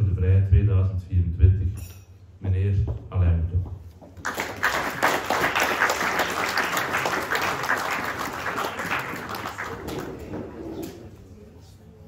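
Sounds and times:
audience applauding: 4.2s - 10.5s.

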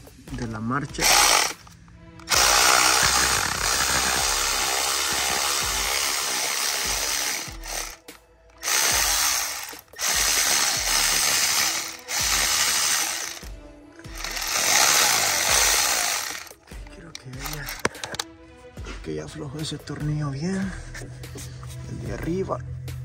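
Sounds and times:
power wrench running: 1.0s - 16.7s, 17.4s - 18.2s.

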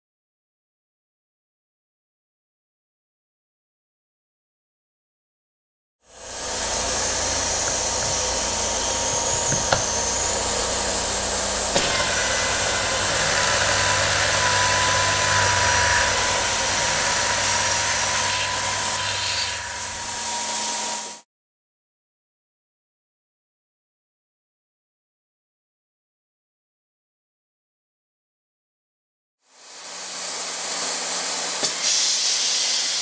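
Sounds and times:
drilling machine motor and cutting: 6.1s - 21.2s.

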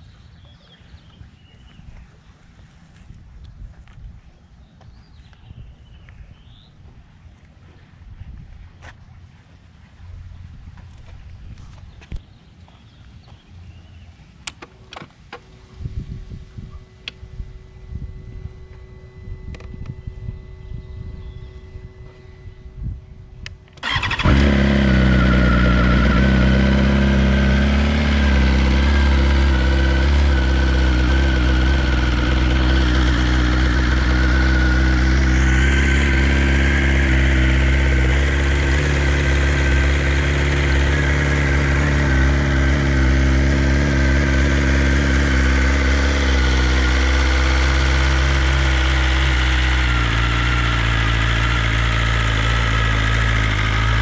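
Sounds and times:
motorcycle engine idling: 15.4s - 54.0s.

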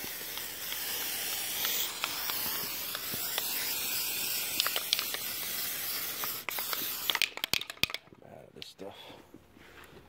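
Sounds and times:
aerosol can spraying: 0.0s - 8.0s.

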